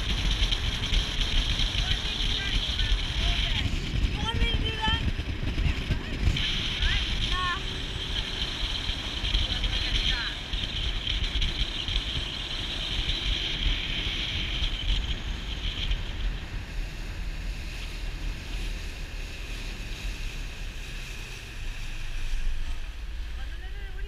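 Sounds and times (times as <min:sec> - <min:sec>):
motorboat engine drone: 0:00.0 - 0:24.0
wind buffeting microphone: 0:00.0 - 0:24.0.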